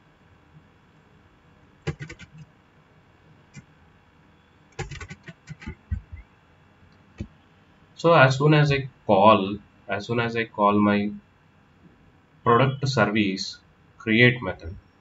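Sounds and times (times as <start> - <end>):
computer keyboard keystrokes: 1.9 - 2.5, 4.8 - 6.3.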